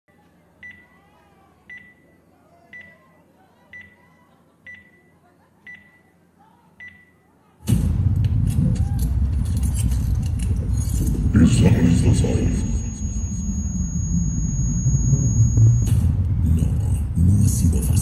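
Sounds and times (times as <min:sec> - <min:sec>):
loud rush of noise: 0:07.7 - 0:17.0
short electronic pings: 0:11.6 - 0:16.1.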